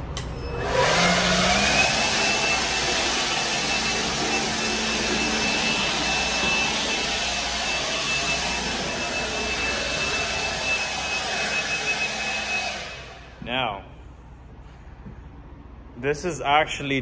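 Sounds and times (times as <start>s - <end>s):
leaf blower running: 0.6s - 13.4s.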